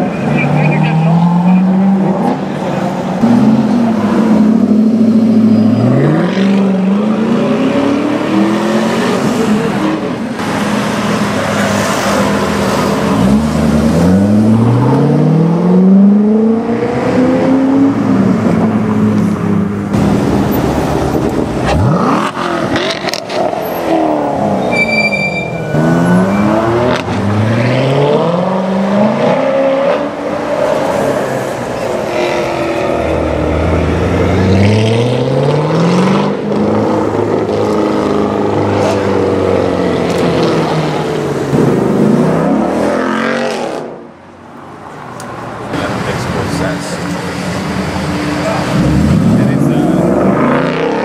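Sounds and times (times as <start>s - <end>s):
car engines accelerating hard: 0.0s - 24.8s, 25.6s - 51.0s.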